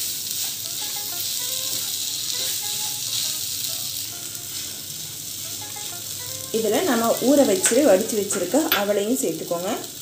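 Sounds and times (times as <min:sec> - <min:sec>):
wooden spatula stirring in pan: 0:00.0 - 0:03.5
potato sizzling in butter: 0:00.0 - 0:10.0.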